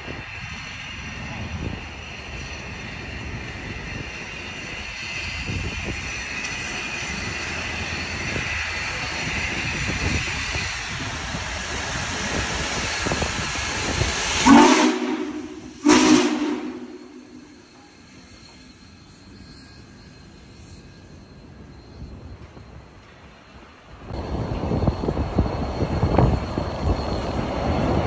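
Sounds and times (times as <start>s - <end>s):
steam locomotive hissing steam: 0.0s - 28.0s
steam whistle blasts: 14.4s - 17.7s.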